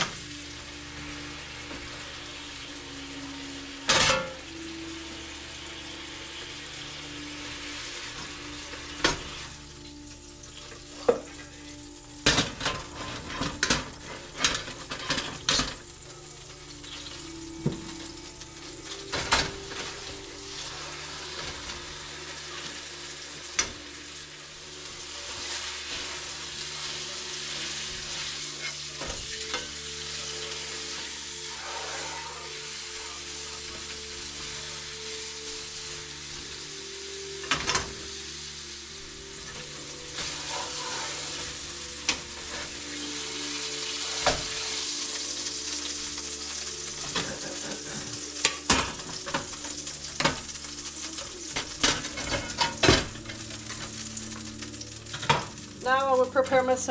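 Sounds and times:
meat sizzling in a frying pan: 0:00.0 - 0:56.9
utensils clinking on pans: 0:03.8 - 0:04.5, 0:08.0 - 0:09.5, 0:10.6 - 0:36.6, 0:37.4 - 0:38.2, 0:39.4 - 0:56.9.

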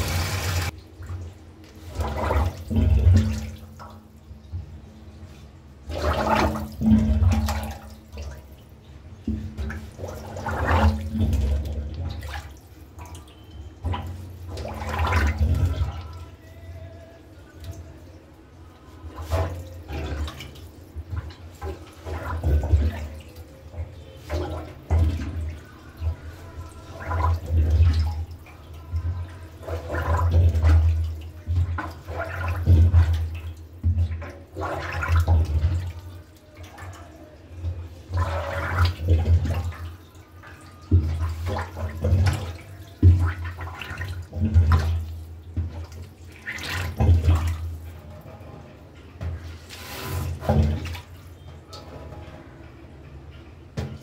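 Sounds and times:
water surging through drain: 0:00.0 - 0:00.8
plunger pumping in sink: 0:00.0 - 0:04.8, 0:05.8 - 0:16.5, 0:18.8 - 0:37.0, 0:37.6 - 0:48.0, 0:49.2 - 0:52.4.

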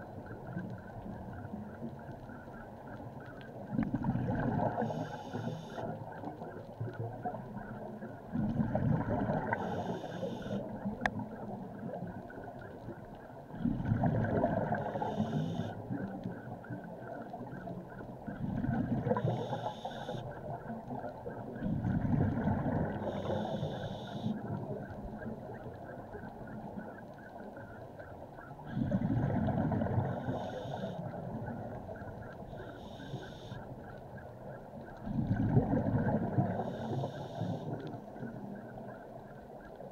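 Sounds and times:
faint hum: 0:00.0 - 0:39.9
regulator hiss: 0:09.6 - 0:10.6, 0:23.0 - 0:24.3, 0:32.6 - 0:33.6, 0:36.6 - 0:37.8
diver breathing through regulator: 0:23.0 - 0:24.3, 0:36.6 - 0:37.8.

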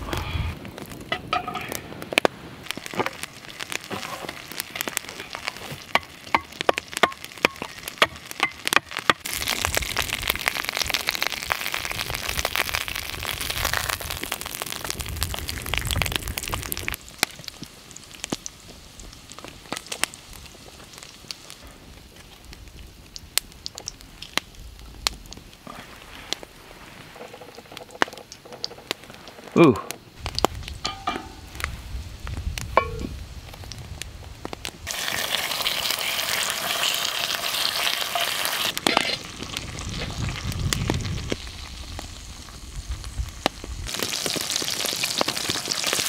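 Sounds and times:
campfire crackling and popping: 0:00.0 - 0:46.0
meat sizzling in a skillet: 0:02.6 - 0:21.6, 0:34.6 - 0:46.0.

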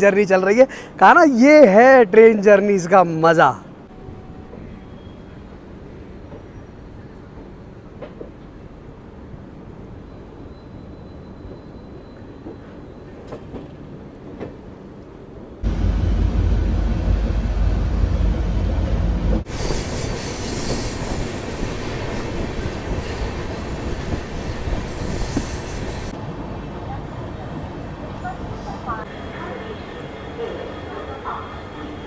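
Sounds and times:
moving train running noise: 0:09.8 - 0:32.0
loud low rumble: 0:15.6 - 0:19.5.

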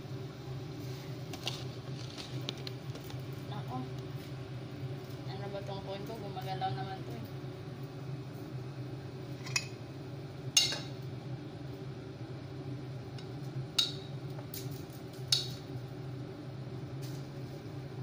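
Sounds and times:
low kitchen hum: 0:00.0 - 0:18.0
kitchenware clinking: 0:09.4 - 0:09.8, 0:10.6 - 0:11.0.

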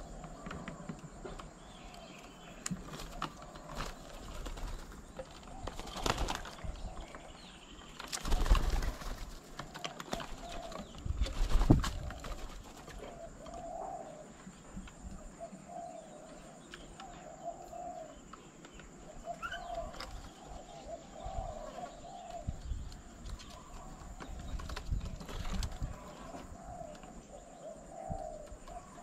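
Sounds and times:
dove cooing: 0:00.0 - 0:29.0
doves flapping wings: 0:02.2 - 0:13.5, 0:22.9 - 0:26.3.

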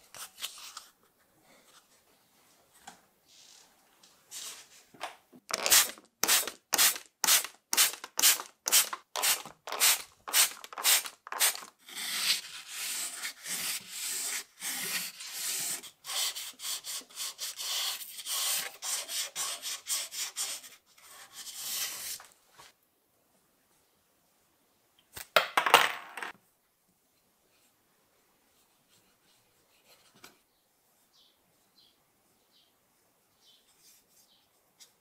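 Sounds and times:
sandpaper rubbing on sheet metal: 0:05.5 - 0:20.8.

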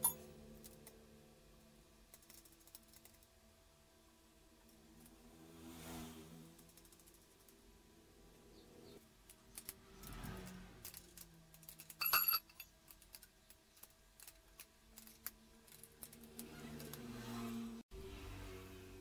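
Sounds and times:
spanner clinking against metal bolts: 0:00.0 - 0:00.8, 0:10.8 - 0:17.0.

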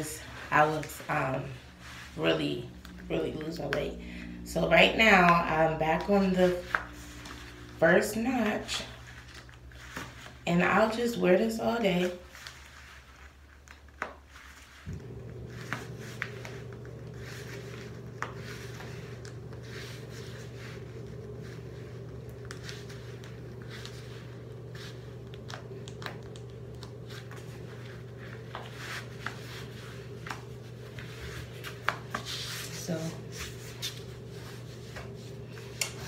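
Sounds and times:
steady low hum: 0:00.0 - 0:13.5, 0:14.7 - 0:36.0.

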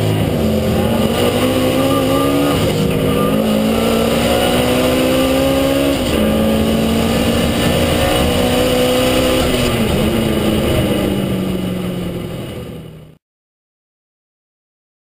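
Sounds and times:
turbocharged car engine running: 0:00.0 - 0:13.2.

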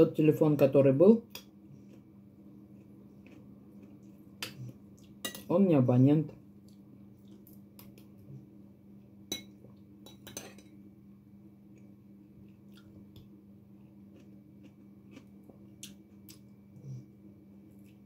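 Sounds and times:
steady low hum: 0:00.0 - 0:18.0
cutlery clinking against dishes: 0:09.3 - 0:10.7.

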